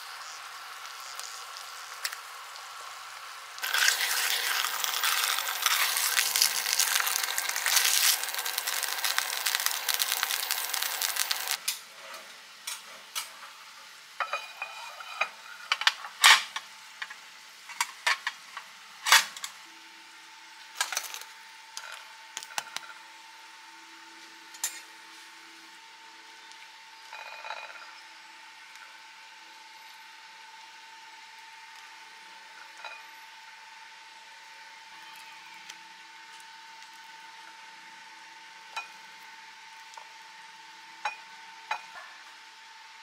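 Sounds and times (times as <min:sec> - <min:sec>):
food sizzling in a frying pan: 0:00.0 - 0:11.7
dishes and utensils clinking: 0:14.2 - 0:16.5.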